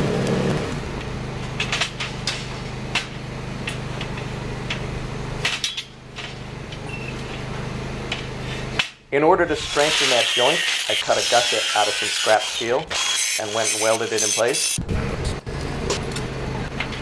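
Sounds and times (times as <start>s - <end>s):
welding electrical hum: 0.0s - 17.0s.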